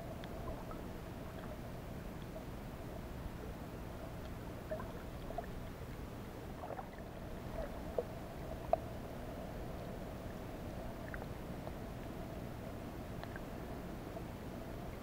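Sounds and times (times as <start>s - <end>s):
low underwater rumble: 0.0s - 3.4s, 4.0s - 13.8s
faint hum: 0.0s - 15.0s
small clicks and pops: 13.2s - 13.5s.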